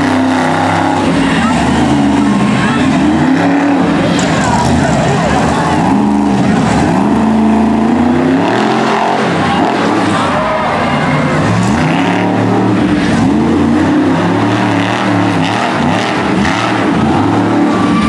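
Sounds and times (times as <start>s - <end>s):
truck engine revving: 0.0s - 18.0s.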